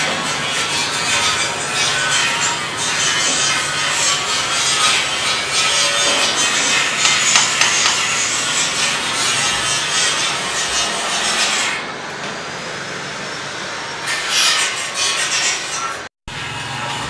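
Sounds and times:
hand tool scraping metal blades: 0:00.5 - 0:11.8.

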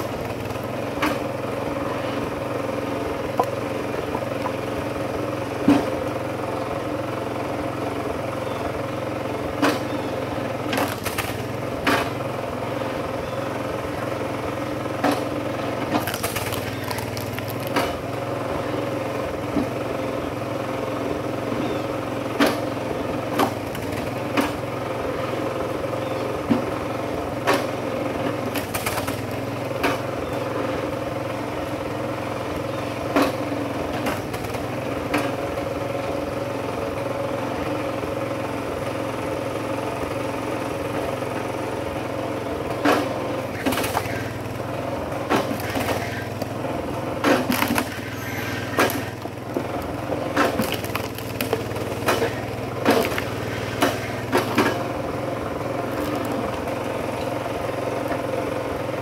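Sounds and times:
small engine running: 0:00.0 - 0:59.0
wood cracking and knocking: 0:10.7 - 0:11.4, 0:15.9 - 0:18.0, 0:47.2 - 0:48.1, 0:48.7 - 0:54.8, 0:55.9 - 0:56.7.

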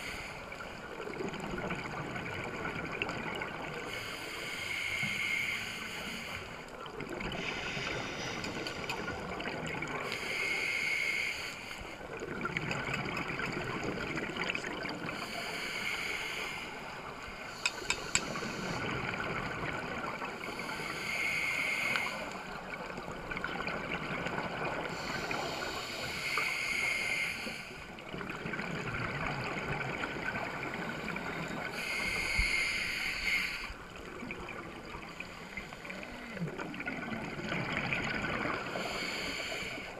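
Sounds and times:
hissing inhale through regulator: 0:00.0 - 0:00.6, 0:03.7 - 0:12.2, 0:15.1 - 0:19.4, 0:20.2 - 0:22.8, 0:24.8 - 0:28.0, 0:30.7 - 0:34.1, 0:34.8 - 0:36.8, 0:38.4 - 0:39.9
bubbling exhaust underwater: 0:00.0 - 0:39.9.

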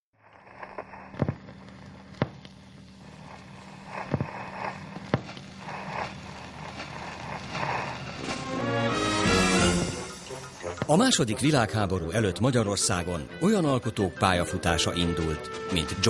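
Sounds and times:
film crackle: 0:00.1 - 0:11.6
steady hiss: 0:00.2 - 0:11.2
low hum: 0:00.2 - 0:12.2
loud pops: 0:00.4 - 0:08.6.

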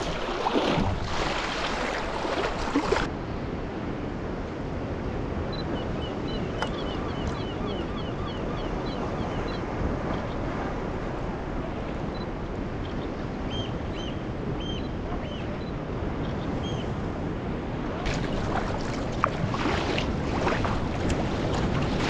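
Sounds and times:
water slapping around kayak: 0:00.0 - 0:03.1, 0:18.0 - 0:22.0
wind buffeting microphone: 0:00.0 - 0:22.0.

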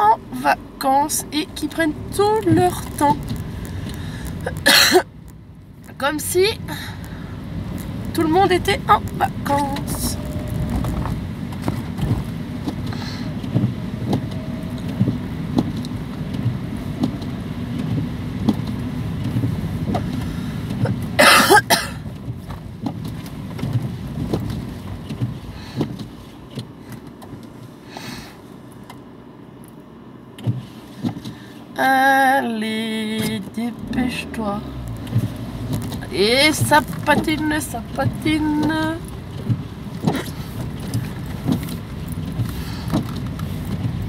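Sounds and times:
car cabin rumble: 0:00.0 - 0:44.0
small clicks and rattles: 0:34.8 - 0:44.0.

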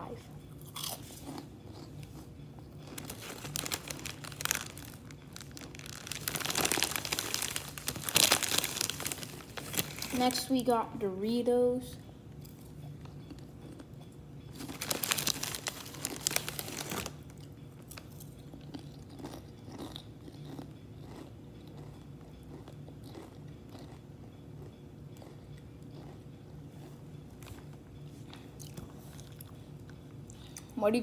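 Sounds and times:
chips being crunched and chewed: 0:00.6 - 0:02.0, 0:02.8 - 0:10.5, 0:14.5 - 0:24.0.

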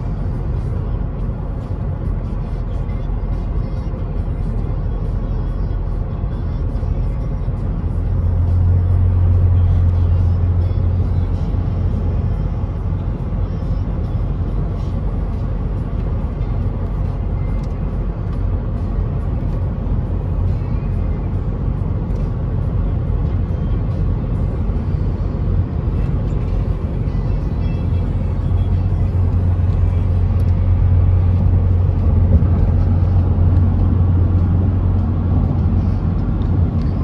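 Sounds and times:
road and engine noise in car: 0:00.0 - 0:37.0.

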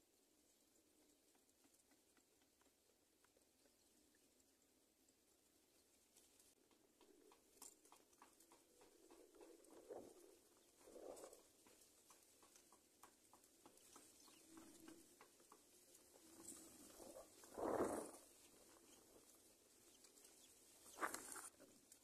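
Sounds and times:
birds rustling in nest: 0:13.6 - 0:21.9.

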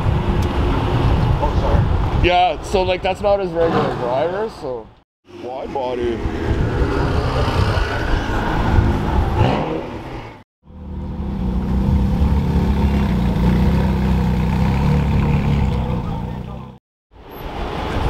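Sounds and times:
deep engine rumble: 0:10.6 - 0:16.8
car engine revving: 0:10.7 - 0:16.7.

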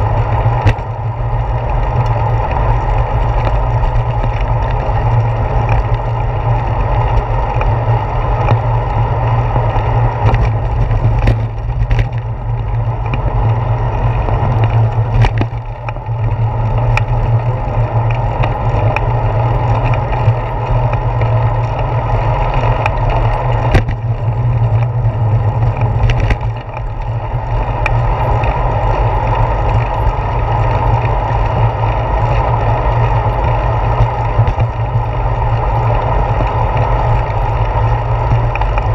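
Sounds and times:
tyre and road vibration: 0:00.0 - 0:38.9
clicks and knocks from bumps: 0:00.4 - 0:01.0, 0:09.8 - 0:28.6, 0:33.4 - 0:35.6.

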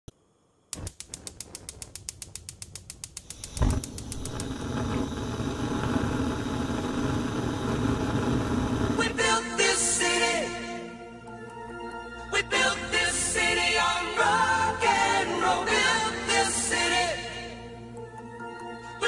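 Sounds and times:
stove igniter clicking: 0:00.7 - 0:08.8
gas burner roaring: 0:00.7 - 0:09.5
gas igniting whoosh: 0:00.7 - 0:10.2.

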